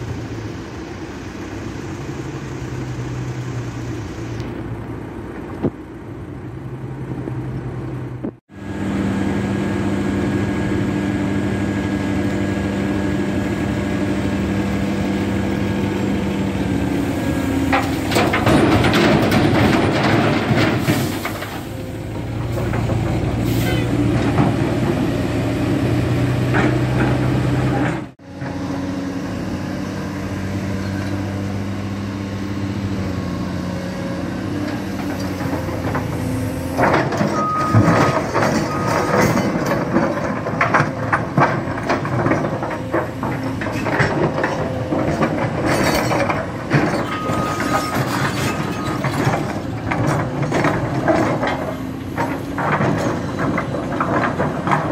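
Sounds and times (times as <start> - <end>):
excavator diesel engine running: 0.0 - 54.9.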